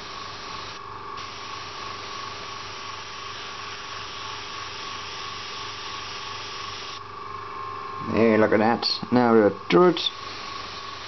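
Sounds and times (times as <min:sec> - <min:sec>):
airbrush hissing: 0:00.0 - 0:07.0, 0:10.1 - 0:11.0
steady low hum: 0:00.0 - 0:11.0.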